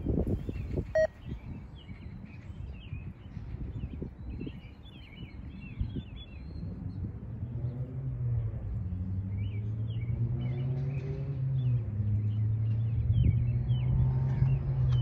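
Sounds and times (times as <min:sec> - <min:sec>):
wind rumbling on microphone: 0:00.0 - 0:15.0
low engine hum: 0:05.0 - 0:15.0.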